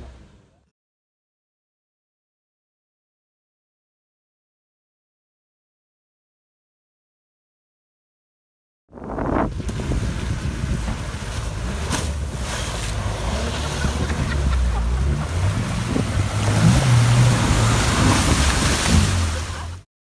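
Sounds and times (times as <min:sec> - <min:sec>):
vehicle engine running low: 0:09.5 - 0:19.8.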